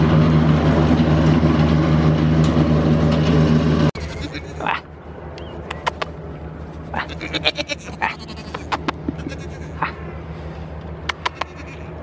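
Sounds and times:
goats bleating: 4.0 - 4.8, 6.9 - 10.0, 11.3 - 12.0
sharp clicks and taps: 5.4 - 6.2, 11.1 - 11.5.

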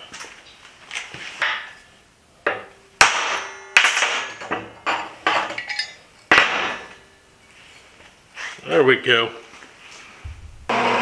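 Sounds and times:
hammer striking metal punch: 2.5 - 4.6.

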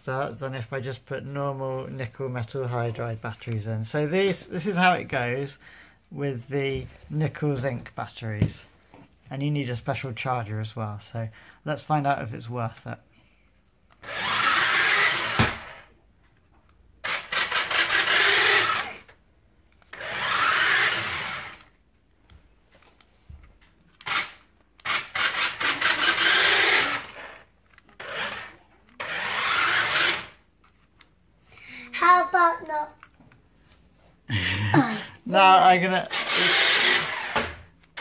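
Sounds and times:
toy truck motor whirring: 13.9 - 15.9, 17.0 - 21.8, 23.9 - 31.0, 36.0 - 38.0.

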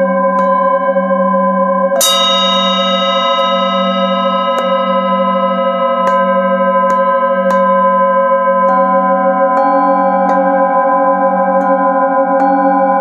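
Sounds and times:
singing bowls ringing: 0.0 - 13.0.

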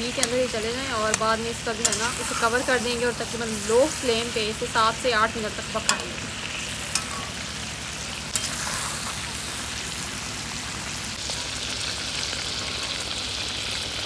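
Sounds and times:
meat frying in hot oil: 0.0 - 14.0
metal spatula clicking on pan: 0.1 - 2.4, 5.8 - 6.2, 6.9 - 7.3.

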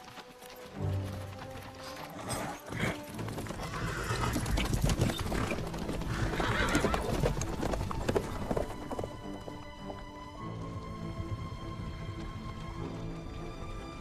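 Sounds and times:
galloping hoofbeats: 0.0 - 14.0
horse whinnying: 2.1 - 8.4.

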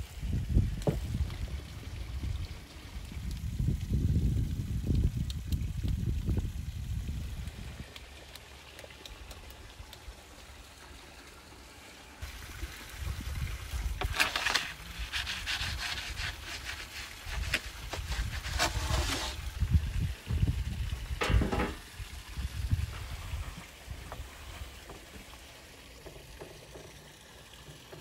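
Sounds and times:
wooden peel scraping on brick: 14.0 - 19.5.

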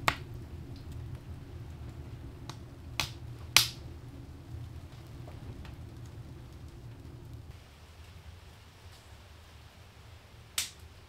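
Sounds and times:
sharp pops of fire: 0.0 - 1.2, 2.4 - 3.9, 10.5 - 10.9
low rumble of stove: 0.0 - 11.0
wood fire crackling: 0.0 - 11.0.

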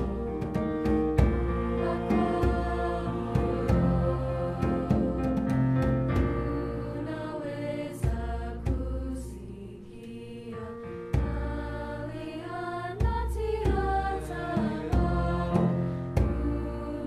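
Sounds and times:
choir singing sustained chords: 0.0 - 17.0
piano chords: 0.0 - 17.0.

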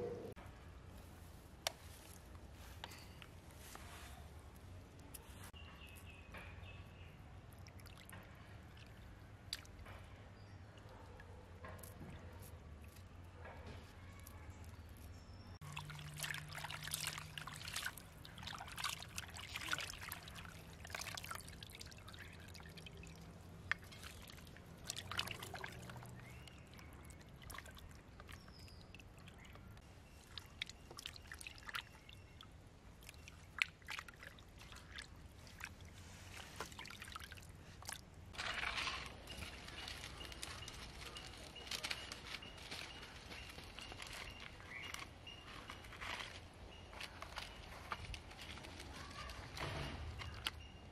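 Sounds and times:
water sloshing and trickling: 1.9 - 50.9
drips and splashes: 6.3 - 13.1, 15.6 - 42.0.

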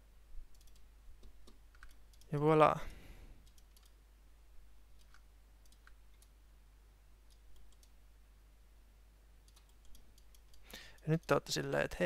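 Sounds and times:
low steady hum: 0.0 - 12.0
computer mouse clicks: 0.5 - 2.4, 3.4 - 4.0, 5.0 - 6.4, 7.3 - 8.0, 9.4 - 11.8.

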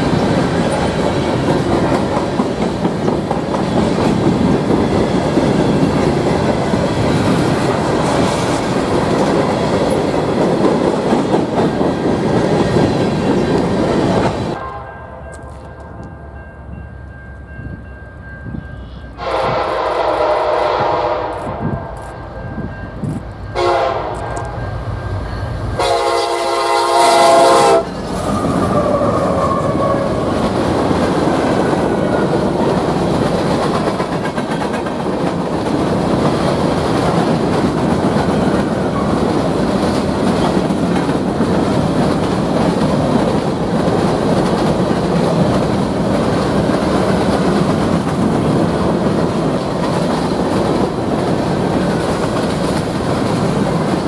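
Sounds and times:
train rumble and wheel clatter: 0.0 - 54.0
locomotive horn blasts: 14.6 - 16.0, 18.8 - 22.0, 23.5 - 24.6, 25.8 - 28.0.

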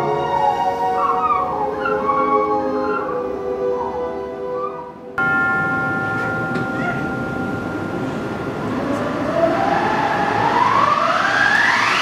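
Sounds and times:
orchestral held notes: 0.0 - 10.1
wind machine rushing: 5.4 - 12.0.

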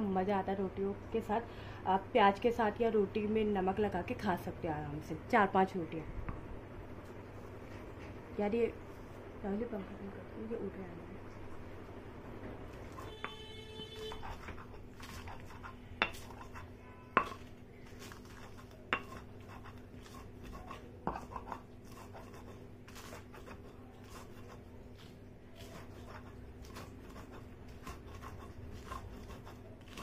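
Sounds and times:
stone scraping on stone: 14.1 - 30.0.

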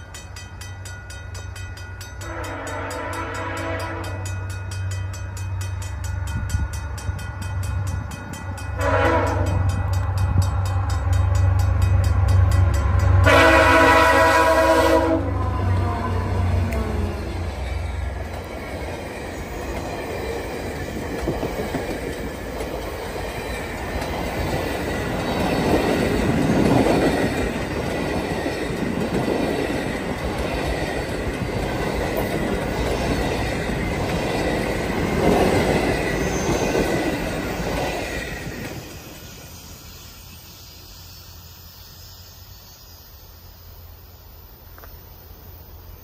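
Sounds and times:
train wheels rumbling on rails: 0.0 - 43.2
high wheel squeal: 35.8 - 42.4.

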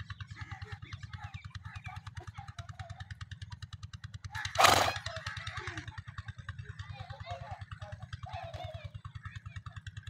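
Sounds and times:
small engine throbbing: 0.0 - 10.0.

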